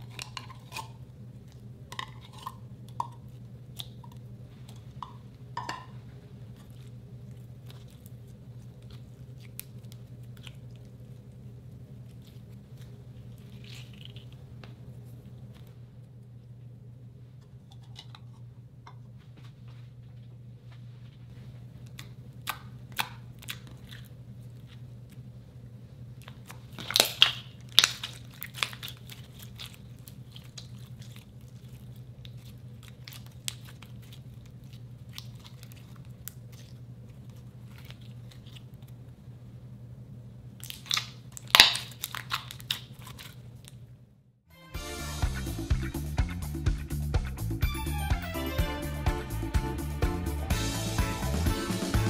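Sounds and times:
steady low hum: 0.0s - 52.0s
slime clicking and popping: 26.2s - 29.8s, 40.6s - 43.2s.

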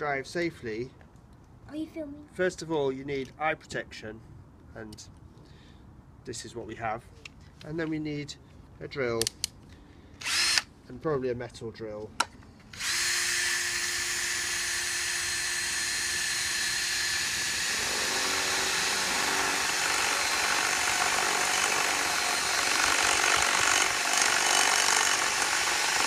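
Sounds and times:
cordless drill boring into metal: 10.2s - 10.7s, 12.7s - 26.0s.

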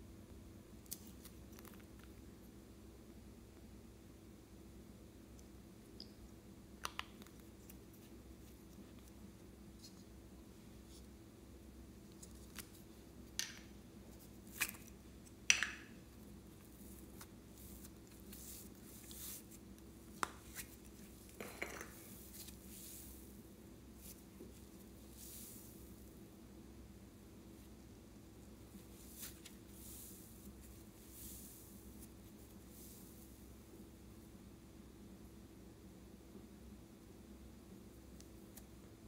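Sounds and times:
faint steady hum: 0.0s - 39.0s.

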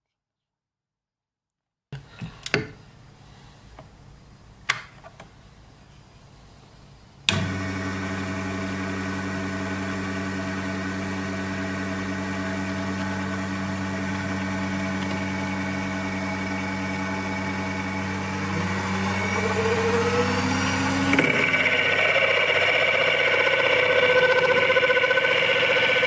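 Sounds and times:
lathe motor hum: 7.3s - 26.0s
rising higher tone: 15.2s - 26.0s.

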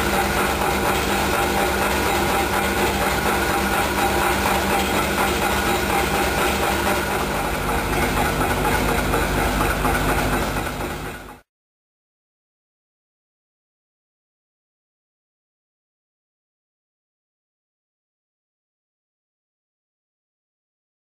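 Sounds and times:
workshop machinery clattering: 0.0s - 11.4s.

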